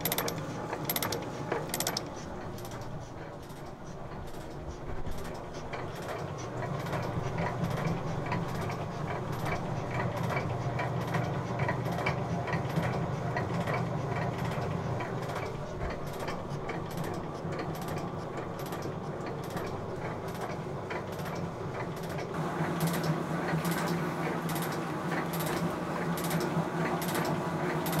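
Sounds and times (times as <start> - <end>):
metal shaper motor hum: 0.0 - 2.9.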